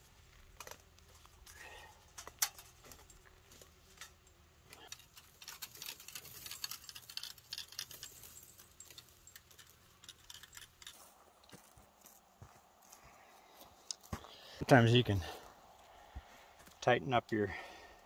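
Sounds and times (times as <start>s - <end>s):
wire clicking and rattling: 0.4s - 13.0s.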